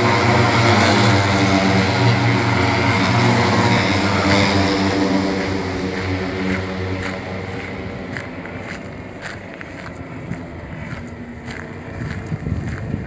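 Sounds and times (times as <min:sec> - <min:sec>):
helicopter flying overhead: 0:00.0 - 0:13.0.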